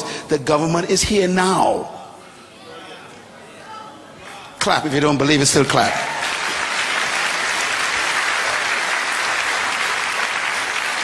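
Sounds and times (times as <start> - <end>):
audience applauding: 5.9 - 11.0.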